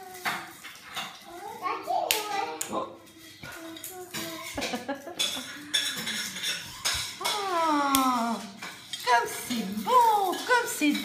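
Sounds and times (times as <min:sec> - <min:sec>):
dry pasta clinking on ceramic bowl: 0:04.4 - 0:11.0.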